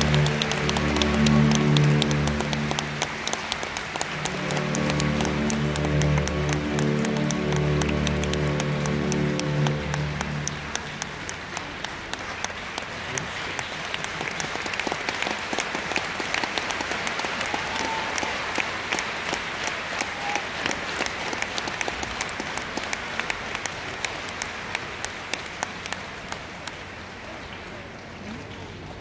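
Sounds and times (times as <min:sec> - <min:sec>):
audience applauding: 0:00.0 - 0:29.0.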